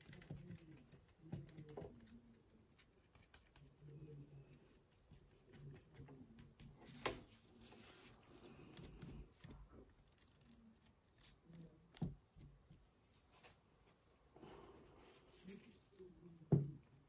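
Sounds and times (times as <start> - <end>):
tissue dabbing on paper: 4.9 - 8.8.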